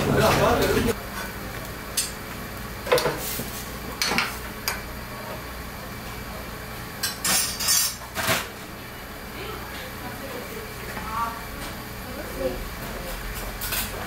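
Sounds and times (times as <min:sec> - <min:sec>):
dishes and pots clinking: 0:04.0 - 0:04.4, 0:13.3 - 0:14.0.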